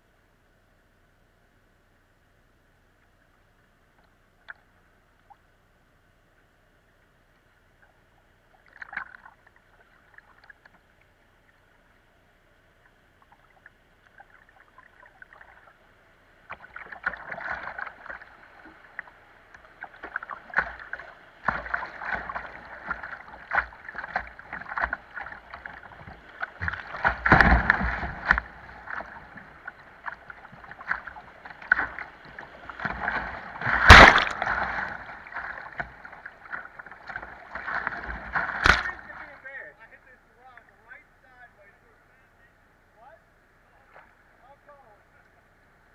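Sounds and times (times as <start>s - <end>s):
water slapping on hull: 16.5s - 39.4s
river water rushing: 16.8s - 39.4s.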